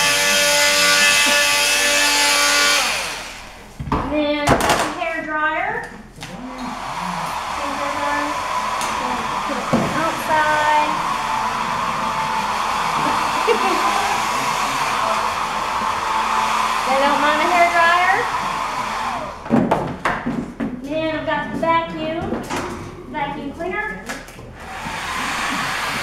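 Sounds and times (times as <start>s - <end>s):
hair dryer blowing: 0.0s - 3.6s, 6.2s - 19.5s, 24.6s - 26.0s.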